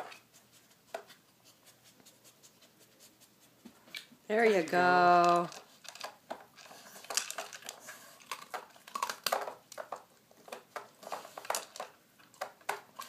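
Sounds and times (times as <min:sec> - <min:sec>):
plastic dog puzzle knocking and clicking: 0:05.1 - 0:13.0.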